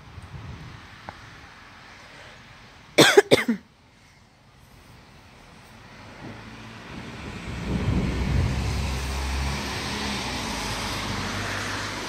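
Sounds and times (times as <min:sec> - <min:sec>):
low rumble: 0:06.1 - 0:10.5.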